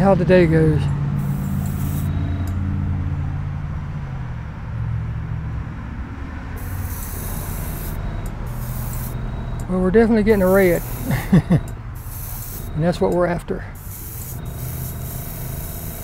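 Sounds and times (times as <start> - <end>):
airbrush spraying hiss: 1.2 - 2.1, 6.6 - 9.2, 10.4 - 11.4, 12.0 - 12.7, 13.8 - 16.0
air compressor humming: 1.2 - 2.6, 6.6 - 16.0.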